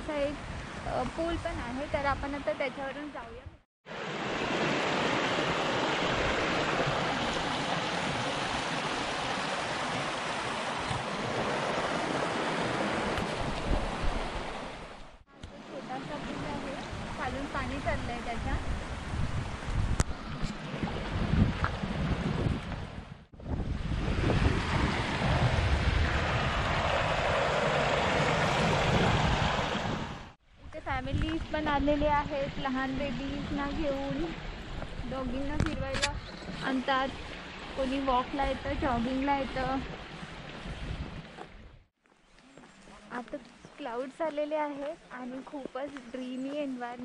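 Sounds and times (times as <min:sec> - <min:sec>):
brook rushing over stones: 0:03.9 - 0:15.0
wind buffeting microphone: 0:04.3 - 0:41.9.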